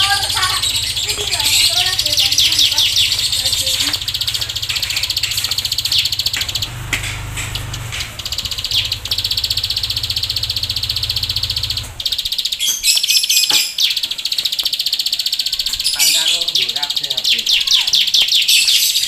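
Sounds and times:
bird singing buzzing trills: 0.0s - 19.0s.

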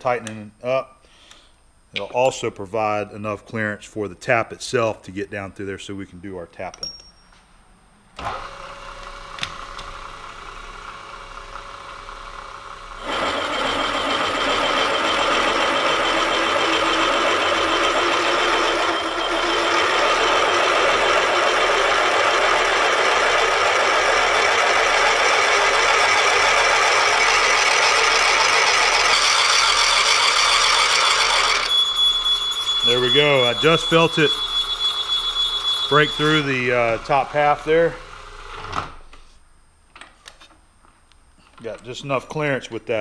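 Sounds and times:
milling machine spindle running: 8.2s - 38.8s
drill cutting into iron: 13.0s - 38.9s.

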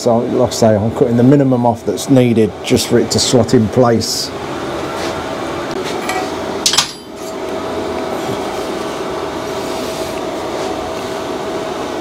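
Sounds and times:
steady mechanical hum: 0.0s - 12.0s
metallic clanks of tools: 6.0s - 7.4s.

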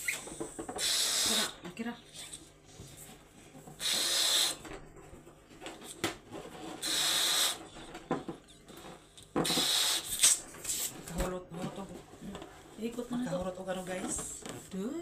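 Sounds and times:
balloon being blown up: 0.0s - 1.6s, 3.8s - 4.7s, 6.8s - 7.8s, 9.4s - 10.9s.

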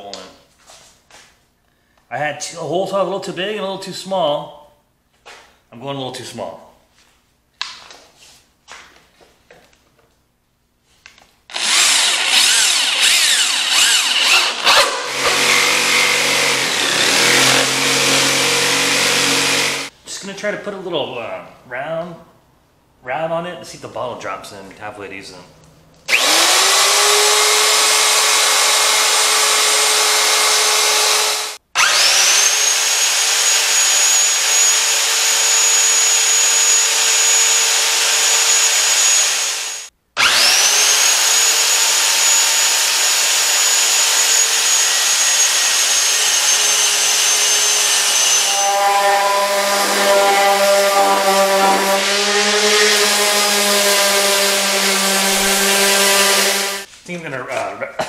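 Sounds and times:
router cutting wood: 11.5s - 19.9s, 26.1s - 56.9s
power saw trimming wood: 11.5s - 20.0s, 26.1s - 56.9s.

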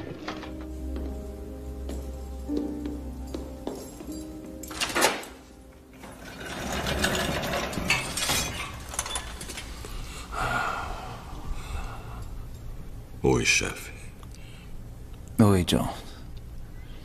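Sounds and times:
mechanical rattling and clanking: 4.7s - 9.8s.

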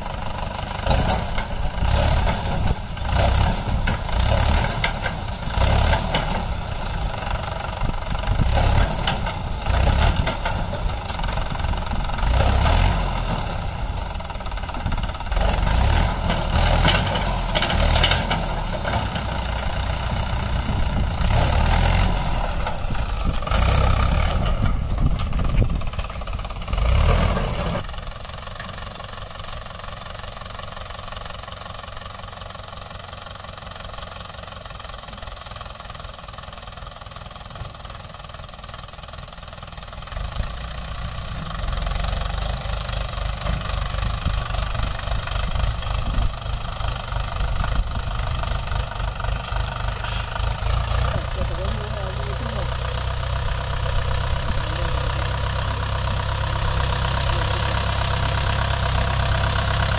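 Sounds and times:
tractor diesel engine running: 0.0s - 59.9s
trailer dumping soil: 0.0s - 59.9s.

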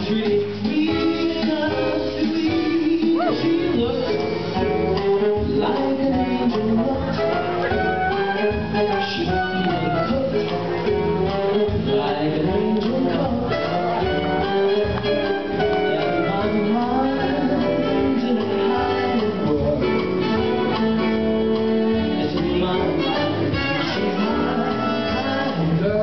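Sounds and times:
song with singing over instruments: 0.0s - 26.0s.

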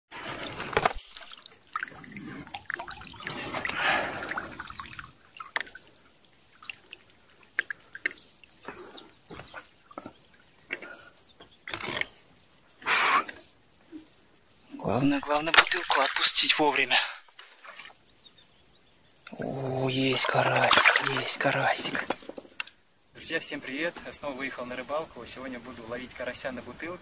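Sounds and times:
small water splashes: 0.3s - 11.1s, 15.2s - 18.0s, 19.3s - 22.3s
water dripping into lake: 1.0s - 12.2s, 19.0s - 22.8s.

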